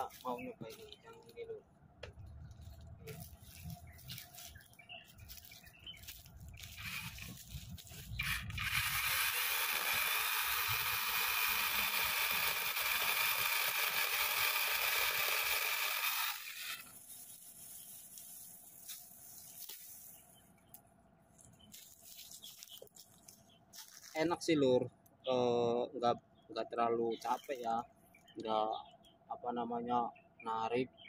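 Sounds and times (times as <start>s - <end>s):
mini chainsaw cutting tree trunk: 6.7s - 7.4s, 8.1s - 16.9s.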